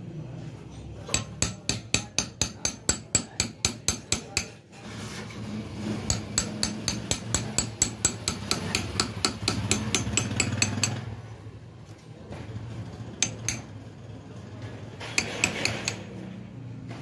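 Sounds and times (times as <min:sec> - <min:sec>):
hammer tapping on steel punch: 0:01.1 - 0:04.6, 0:06.1 - 0:11.0, 0:13.2 - 0:13.8, 0:15.2 - 0:16.1.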